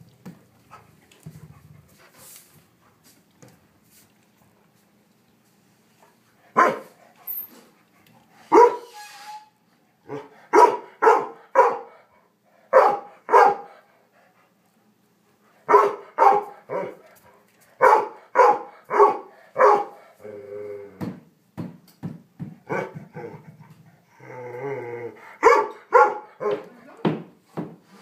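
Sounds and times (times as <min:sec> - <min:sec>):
dog barking sharply: 0:06.6 - 0:06.9, 0:08.5 - 0:08.9, 0:10.1 - 0:11.9, 0:12.7 - 0:13.7, 0:15.7 - 0:16.9, 0:17.8 - 0:19.9, 0:25.4 - 0:26.6.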